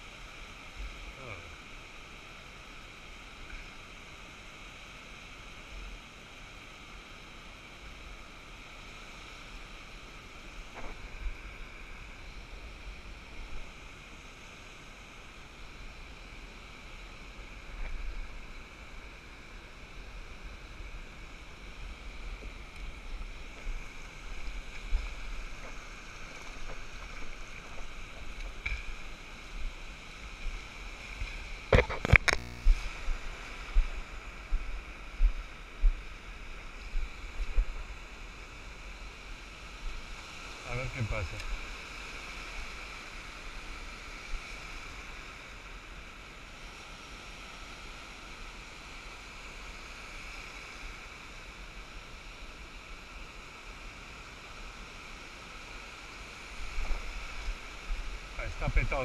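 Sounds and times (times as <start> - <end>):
surf washing up beach: 0.0 - 59.0
wind rumble on microphone: 16.2 - 45.7
sharp clicks: 31.7 - 32.7.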